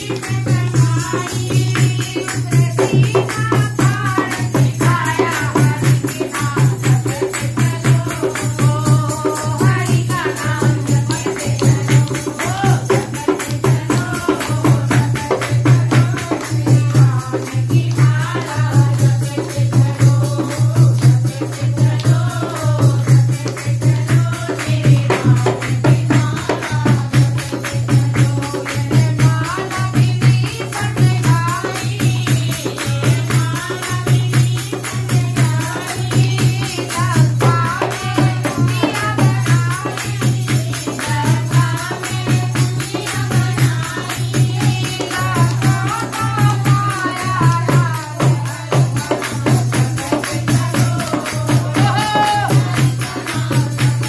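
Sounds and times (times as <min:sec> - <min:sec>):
hand clapping: 0:00.0 - 0:34.1
hand drum beat: 0:00.0 - 0:54.0
rattling hand percussion: 0:00.0 - 0:54.0
women singing devotional song: 0:00.0 - 0:54.0.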